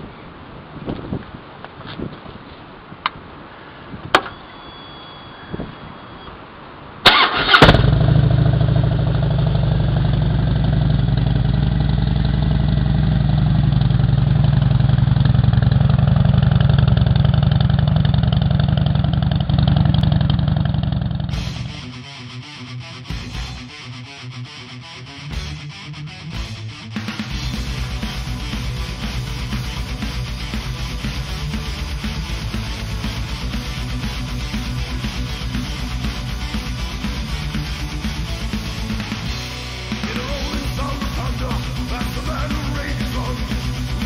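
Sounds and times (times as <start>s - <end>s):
motorcycle starter cranking: 7.1s - 8.4s
motorcycle engine idling: 7.2s - 21.7s, 27.3s - 44.0s.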